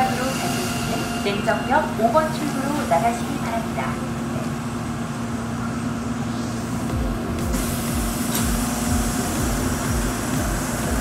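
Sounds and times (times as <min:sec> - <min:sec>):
electrical hum: 0:00.0 - 0:11.0
low train rumble: 0:00.0 - 0:11.0
air hiss: 0:07.4 - 0:11.0.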